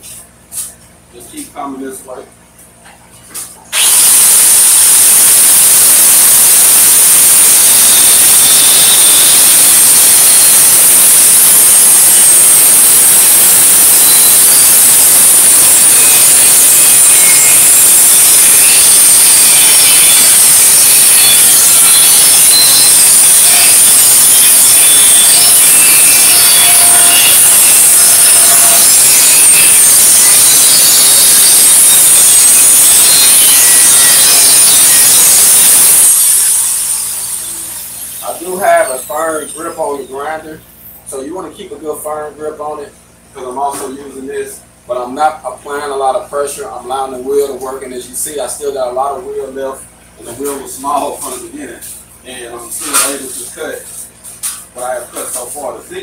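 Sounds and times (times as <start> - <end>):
angle grinder cutting steel: 3.8 - 39.9, 52.7 - 55.7.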